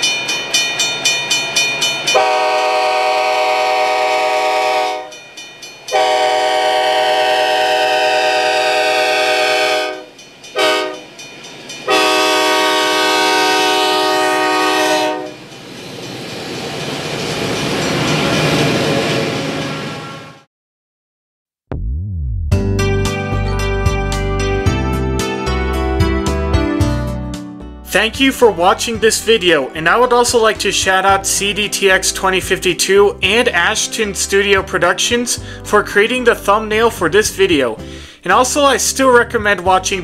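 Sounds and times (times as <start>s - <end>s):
fast bell ringing: 0.0s - 2.2s, 5.1s - 6.0s
train rolling past rumble: 0.0s - 20.5s
locomotive air horn: 2.1s - 5.2s, 5.9s - 11.0s, 11.9s - 15.4s.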